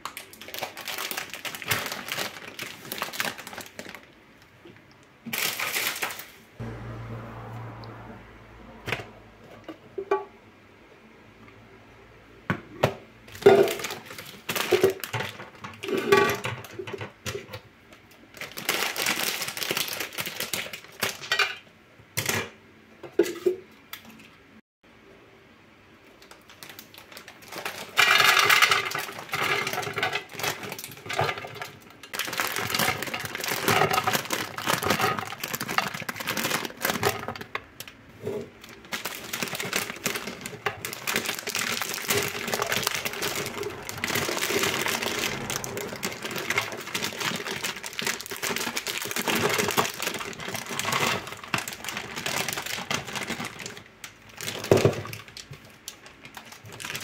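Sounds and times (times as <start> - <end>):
plastic bag crinkling: 0.0 - 4.5, 5.3 - 6.4, 13.3 - 16.8, 18.3 - 21.3, 26.2 - 57.0
dried fruit clattering into canister: 13.3 - 17.6, 27.1 - 57.0.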